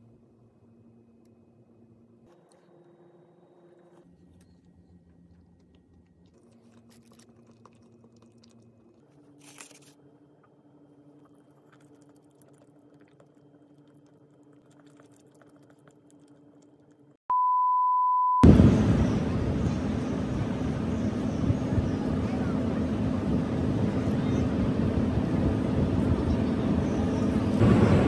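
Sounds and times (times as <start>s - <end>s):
city traffic: 18.4s - 28.0s
crowd noise: 18.4s - 28.0s.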